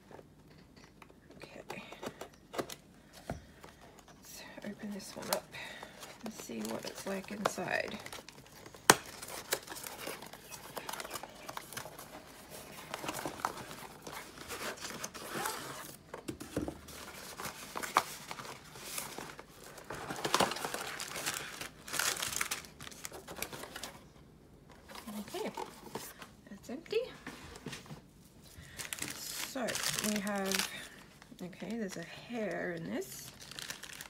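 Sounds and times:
plastic crinkling and rustling: 1.5s - 24.1s, 27.2s - 34.0s.

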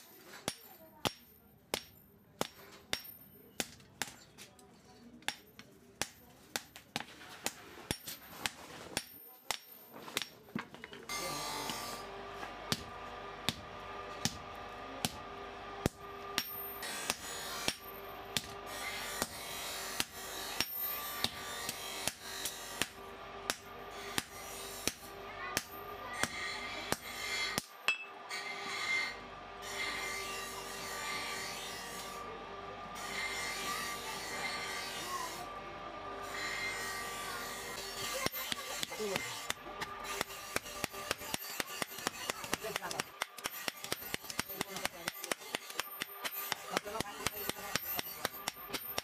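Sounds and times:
hammer striking steel on anvil: 0.3s - 4.2s, 5.2s - 6.8s, 7.4s - 10.4s, 12.7s - 29.2s, 36.6s - 49.0s.

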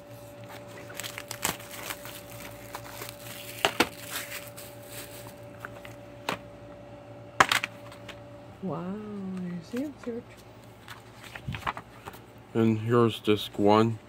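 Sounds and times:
plastic shrink-wrap crinkling: 0.2s - 6.0s.

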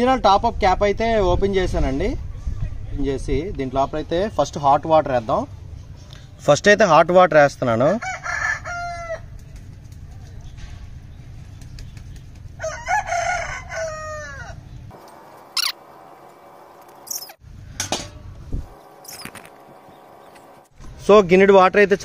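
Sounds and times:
rooster crowing: 8.0s - 9.3s, 12.6s - 14.6s.

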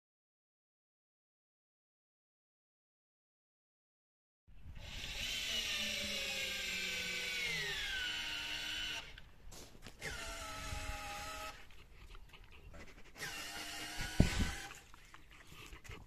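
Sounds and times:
cordless drill motor whine: 4.8s - 9.3s, 10.0s - 11.6s, 13.2s - 14.8s.

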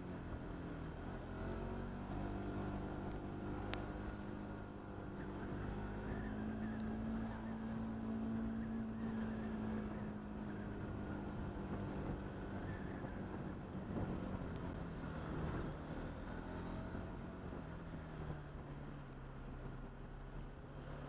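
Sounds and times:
motorcycle engine at low revs: 0.0s - 21.0s.

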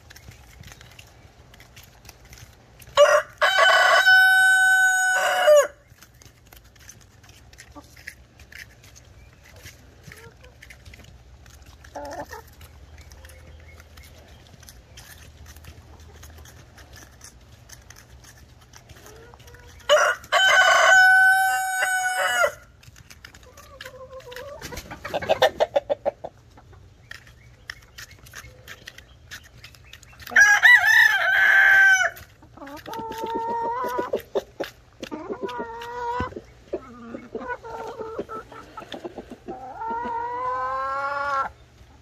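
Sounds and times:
beaks pecking: 0.0s - 41.8s
hens clucking: 0.0s - 42.0s
rooster crowing: 3.0s - 5.8s, 19.9s - 22.6s.

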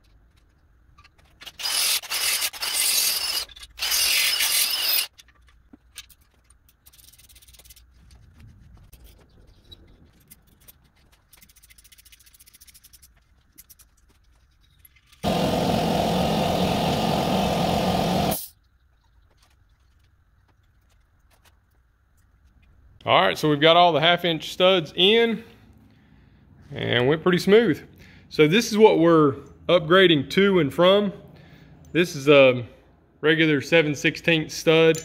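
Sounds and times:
cordless drill drilling metal: 1.4s - 5.1s, 15.2s - 18.5s.

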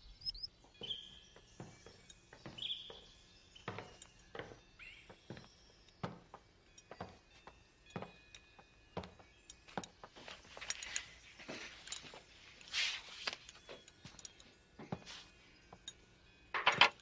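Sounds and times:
faint high chirps: 0.0s - 16.8s.

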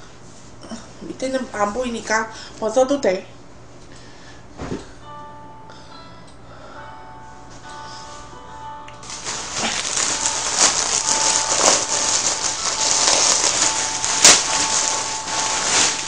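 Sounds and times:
loud rustling and crackling: 9.0s - 16.0s.

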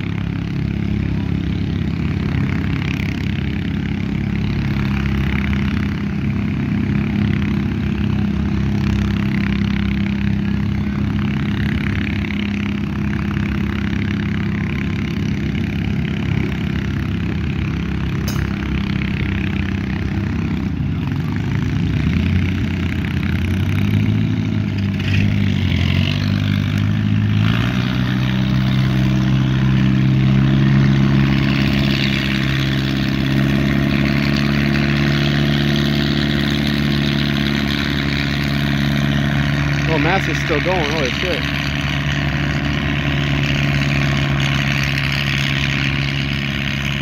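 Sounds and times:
tractor engines under heavy load: 0.0s - 47.0s.

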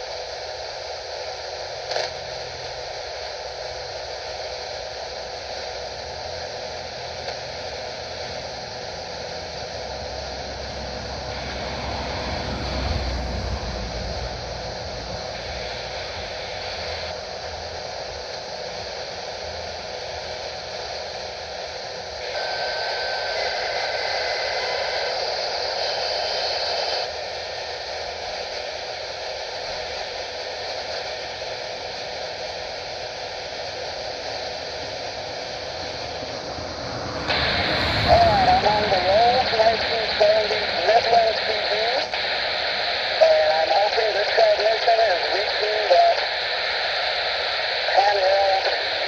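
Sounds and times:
radio static hiss: 0.0s - 49.0s.

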